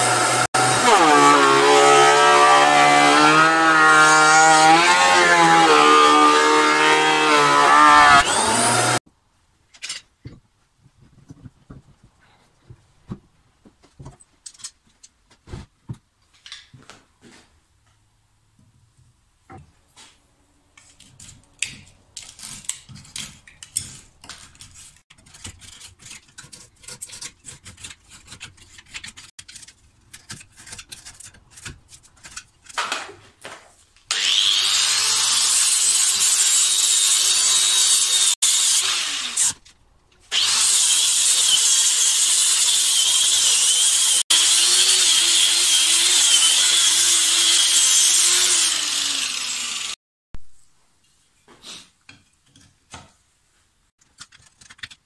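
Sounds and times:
angle grinder grinding wood: 0:00.0 - 0:09.0, 0:34.1 - 0:39.6, 0:40.3 - 0:50.0
hand scraping and cutting wood: 0:19.5 - 0:34.6, 0:54.0 - 0:55.0.

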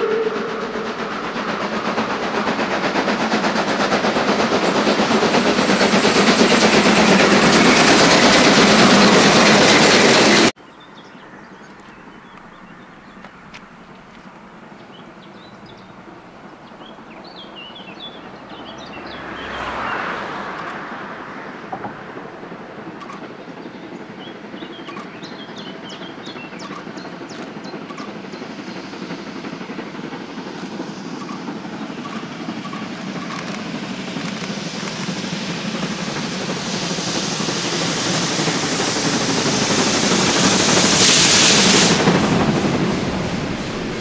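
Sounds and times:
steam locomotive running: 0:00.0 - 0:44.0
birds chirping: 0:22.9 - 0:33.5.

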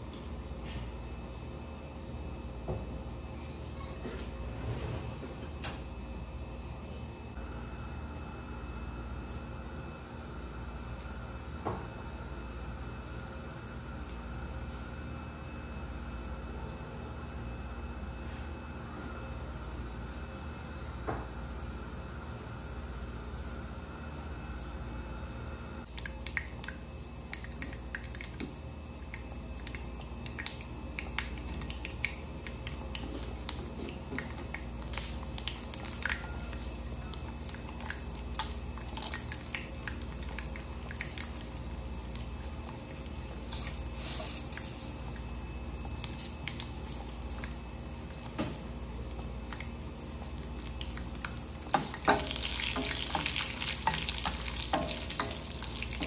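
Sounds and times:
seeds popping in hot oil: 0:25.8 - 0:56.0
oil sizzling: 0:29.0 - 0:56.0.

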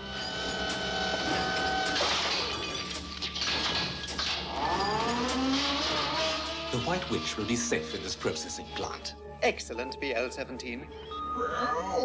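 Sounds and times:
steady mechanical hum: 0:00.0 - 0:03.2.

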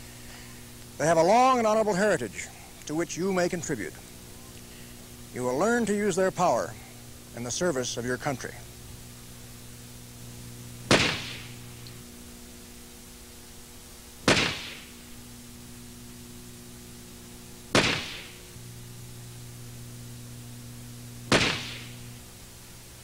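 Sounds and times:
pistol shots: 0:10.9 - 0:11.6, 0:14.2 - 0:15.0, 0:17.7 - 0:18.5, 0:21.3 - 0:22.0.

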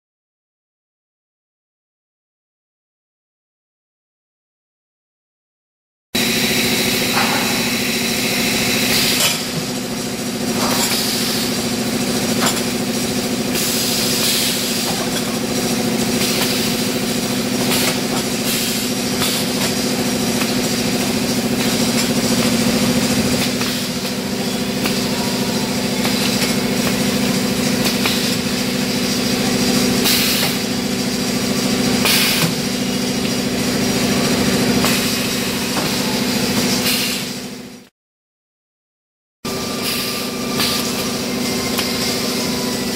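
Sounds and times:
machine hum: 0:06.2 - 0:37.8
knocks and clatter of machine parts: 0:12.2 - 0:13.7.

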